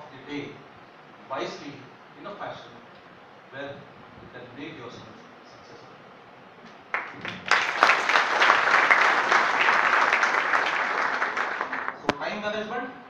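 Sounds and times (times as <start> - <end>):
audience applauding: 6.9 - 12.1.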